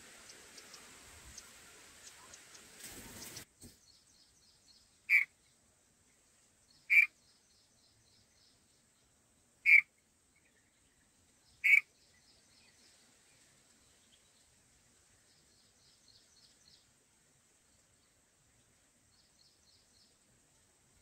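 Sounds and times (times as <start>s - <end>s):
bird giving sharp calls: 5.1s - 5.3s, 6.9s - 7.1s, 9.7s - 9.9s, 11.6s - 11.9s.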